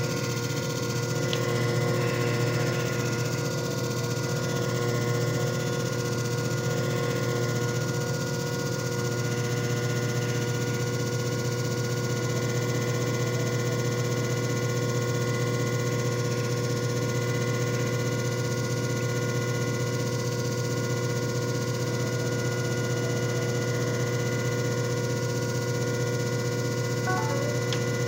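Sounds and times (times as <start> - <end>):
machine motor humming: 0.0 - 5.4.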